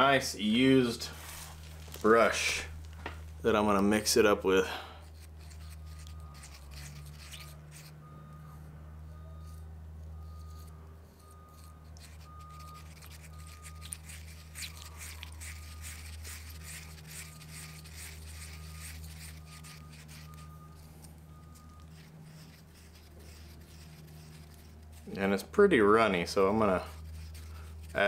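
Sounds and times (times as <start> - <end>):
steady low hum: 0.0 - 28.0
brush scraping putty in plastic cup: 5.0 - 8.4, 10.2 - 28.0
faint high beeps: 7.4 - 13.9, 19.4 - 22.5.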